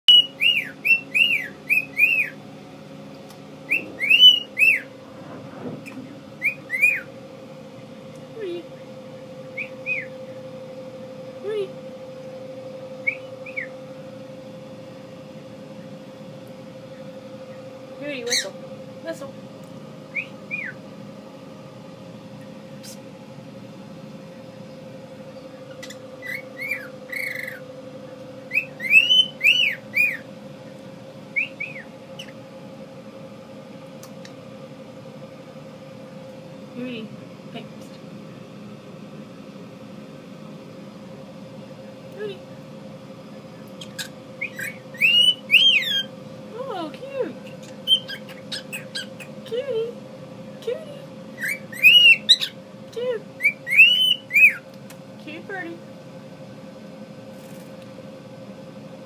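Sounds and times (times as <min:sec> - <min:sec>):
faint steady hum: 0:00.0 - 0:59.0
cockatiel whistling: 0:00.1 - 0:02.4, 0:03.7 - 0:04.9, 0:06.4 - 0:07.1, 0:09.5 - 0:10.3, 0:13.0 - 0:13.7, 0:20.1 - 0:20.8, 0:25.7 - 0:27.6, 0:28.5 - 0:30.2, 0:31.4 - 0:32.4, 0:43.8 - 0:46.1, 0:47.8 - 0:49.3, 0:51.4 - 0:52.6, 0:53.4 - 0:54.6.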